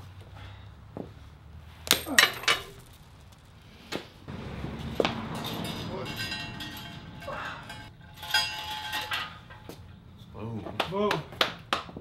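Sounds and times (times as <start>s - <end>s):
steady background noise: 0.0s - 12.0s
steel chains clinking: 1.9s - 3.6s, 4.3s - 10.0s
heavy metal clanking: 4.3s - 9.9s.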